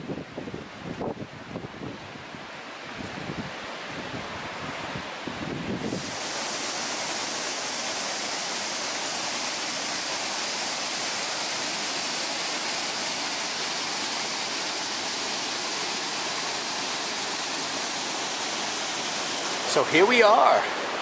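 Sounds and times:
brook rushing over rocks: 5.7 - 21.0.

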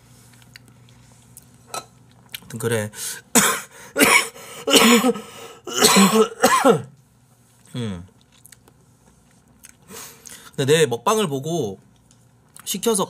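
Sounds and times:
man coughing: 3.3 - 6.9.

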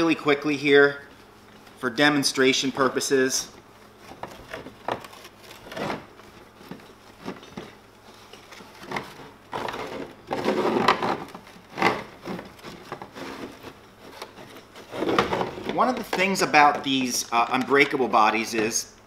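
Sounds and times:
cloth rubbing on hard plastic: 8.0 - 16.5.

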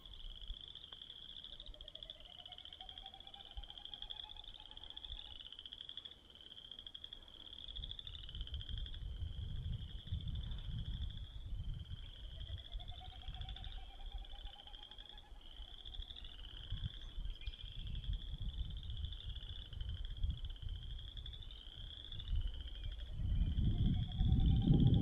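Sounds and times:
snipe winnowing: 0.0 - 8.9, 12.0 - 19.8
frogs calling in chorus: 0.0 - 25.0.

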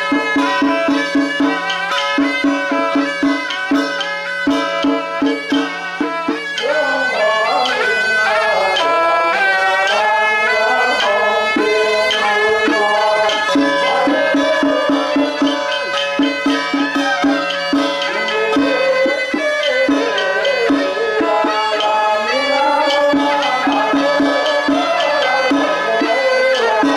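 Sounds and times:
piercing sliding melody: 0.0 - 26.9
small drum beats: 0.0 - 26.9
steady drone: 5.5 - 26.9.

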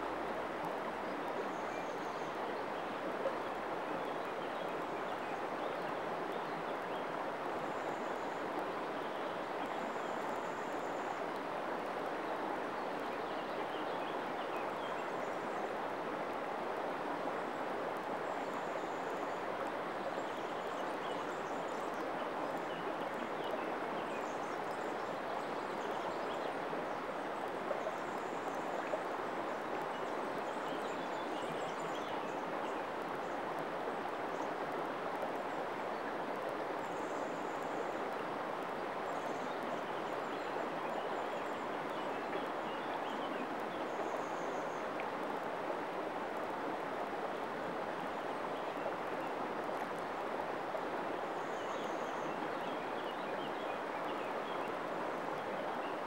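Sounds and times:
river water rushing over stones: 26.5 - 56.0.

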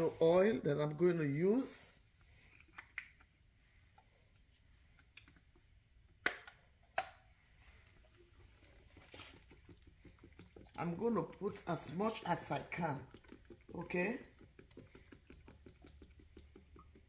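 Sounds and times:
oil pouring into pot: 7.6 - 17.0.

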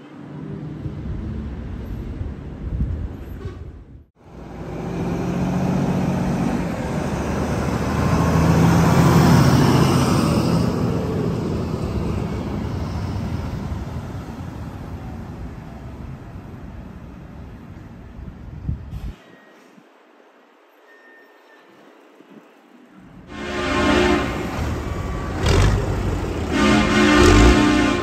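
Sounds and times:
trailer rolling past: 4.2 - 17.3, 23.0 - 28.0
diesel trucks driving past: 4.2 - 18.2, 23.0 - 28.0.

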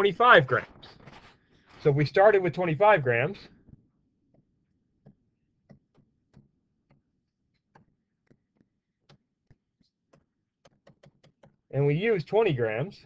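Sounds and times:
stylus tapping on tablet screen: 4.3 - 11.7.

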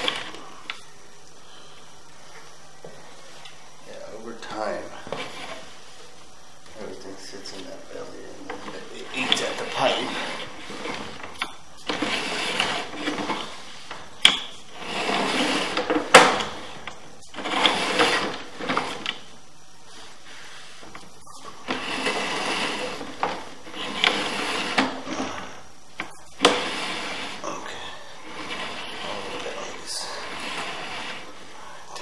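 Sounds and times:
cable rattling and scraping in pipe: 6.8 - 19.3, 20.0 - 27.6, 28.2 - 32.0.

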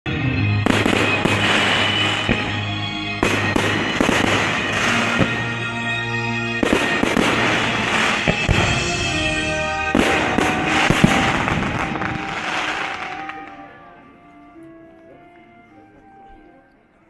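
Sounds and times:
music with long held notes: 0.1 - 17.0
fireworks firing and bursting: 0.5 - 14.0.

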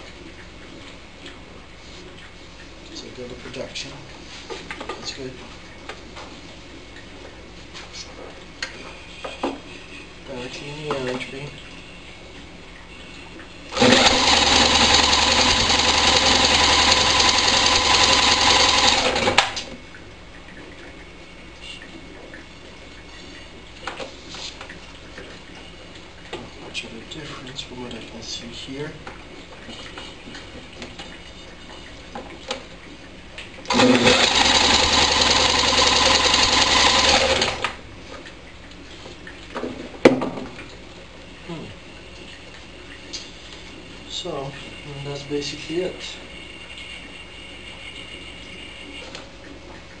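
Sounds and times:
electric drill spinning engine: 13.7 - 19.4, 33.7 - 37.7
drill click: 33.7 - 37.2.

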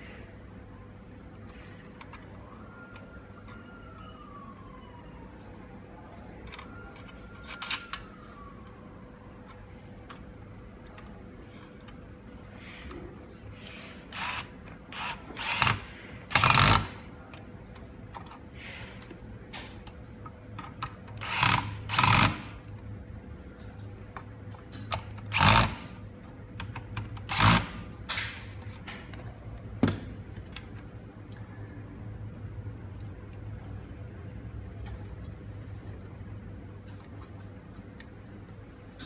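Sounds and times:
electric screwdriver driving screws: 14.2 - 17.0, 21.2 - 22.5, 25.3 - 25.9, 27.3 - 27.8.

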